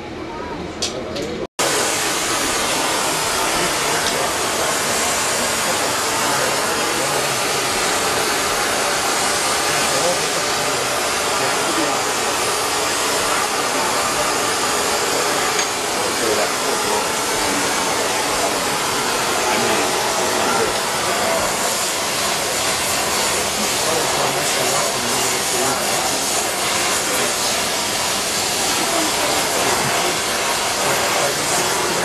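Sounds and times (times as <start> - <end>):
torch flame hissing: 1.6 - 32.0.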